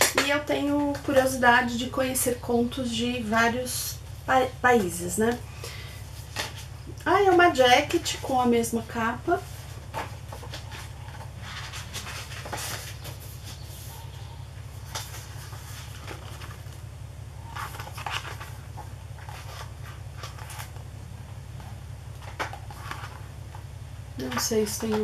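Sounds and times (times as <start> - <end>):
steady low hum: 0.0 - 25.0
book pages turning: 6.1 - 8.3, 9.4 - 16.8, 17.4 - 20.9, 21.5 - 23.6, 24.2 - 25.0.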